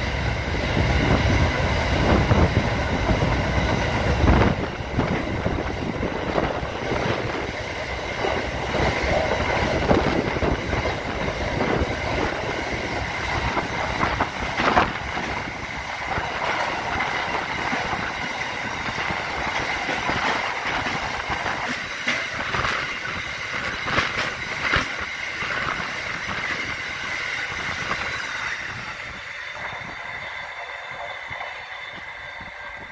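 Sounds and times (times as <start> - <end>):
wheels clicking over rail joints: 5.0 - 26.6.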